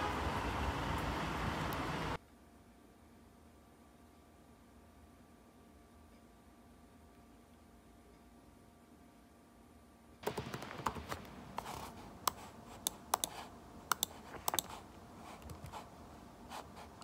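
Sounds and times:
faint hum: 0:00.0 - 0:17.0
laptop keyboard typing: 0:10.2 - 0:15.9.

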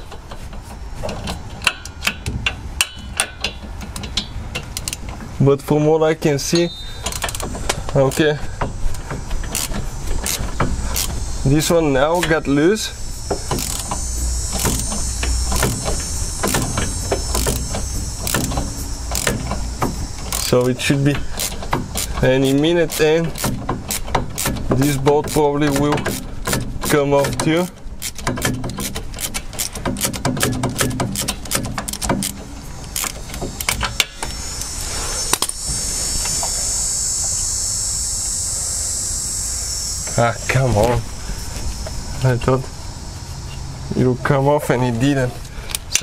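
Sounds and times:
hand ratchet clicking: 0:00.0 - 0:05.2, 0:06.6 - 0:37.6, 0:45.6 - 0:46.0
steady low hum: 0:00.0 - 0:46.0
high-pitched buzz: 0:06.0 - 0:26.2, 0:30.7 - 0:46.0.

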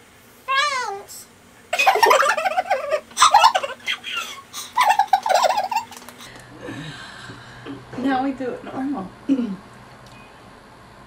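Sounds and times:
women giggling and laughing: 0:01.8 - 0:06.2.

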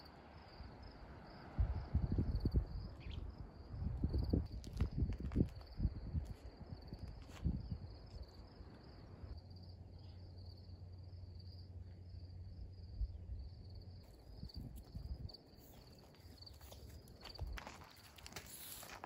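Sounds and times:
insects trilling: 0:00.0 - 0:19.0
footsteps on gravel: 0:14.7 - 0:19.0.

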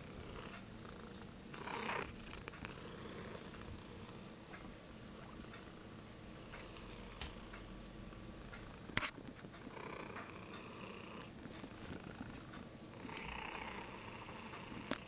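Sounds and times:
cat purring: 0:00.0 - 0:04.3, 0:05.1 - 0:15.0.

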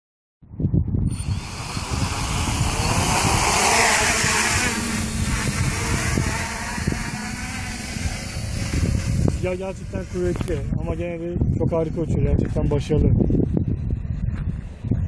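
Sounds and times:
wind rumble on microphone: 0:00.4 - 0:15.0
drone propellers whirring: 0:01.0 - 0:12.6.

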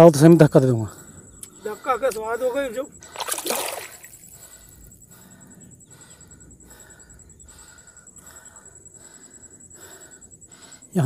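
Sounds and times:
faint rhythmic breathing: 0:00.6 - 0:11.0.

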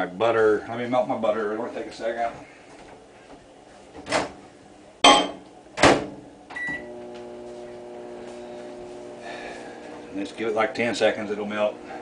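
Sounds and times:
microwave oven humming: 0:04.6 - 0:12.0
microwave beep: 0:06.5 - 0:07.1.

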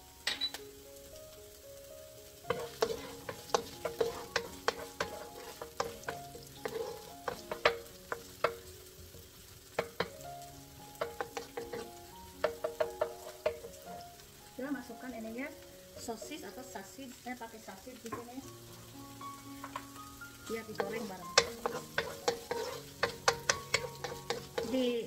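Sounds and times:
oil sizzling: 0:00.0 - 0:25.0
soft background music: 0:00.0 - 0:25.0
wooden spoon scraping a pan: 0:02.4 - 0:14.0, 0:15.9 - 0:16.8, 0:18.1 - 0:18.4, 0:19.3 - 0:25.0.

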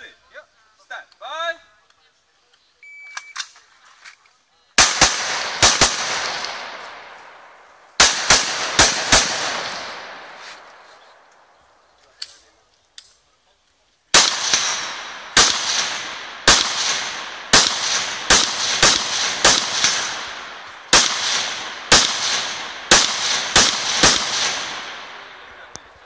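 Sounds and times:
rifle shots echoing: 0:04.8 - 0:11.5, 0:14.1 - 0:26.0.

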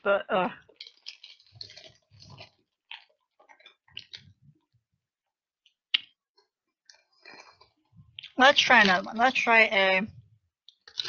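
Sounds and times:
chewing sounds: 0:00.6 - 0:04.8, 0:05.6 - 0:09.0, 0:10.6 - 0:11.0.

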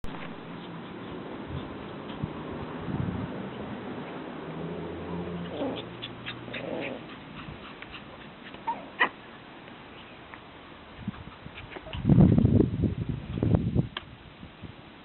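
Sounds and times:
puppies growling and yelping: 0:04.8 - 0:09.3, 0:11.1 - 0:12.2.

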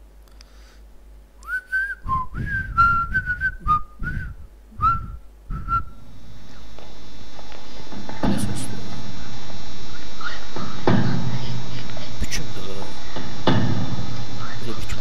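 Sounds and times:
person whistling a tune: 0:01.4 - 0:06.0
low thuds: 0:01.9 - 0:15.0.

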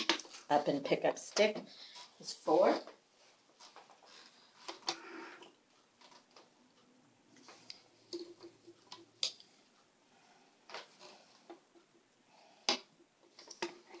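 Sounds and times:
loom clicks and taps: 0:02.8 - 0:09.9, 0:10.7 - 0:14.0.

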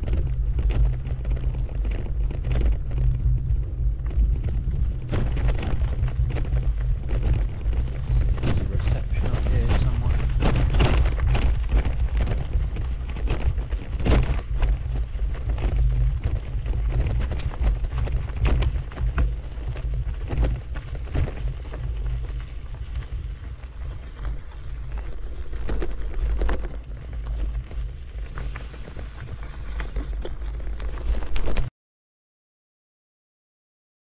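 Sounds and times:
crackles and knocks: 0:00.0 - 0:31.7
wind buffeting microphone: 0:00.0 - 0:31.7
hiss: 0:28.3 - 0:30.3.

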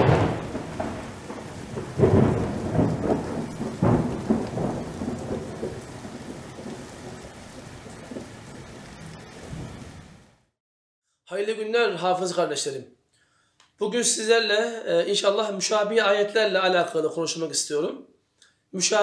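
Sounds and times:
thunder claps and rumble: 0:00.0 - 0:10.3
rain hiss: 0:00.0 - 0:10.6.

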